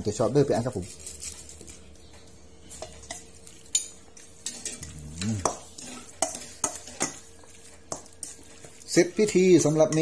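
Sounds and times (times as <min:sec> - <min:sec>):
metal ladle scraping a steel bowl: 0:04.4 - 0:10.0.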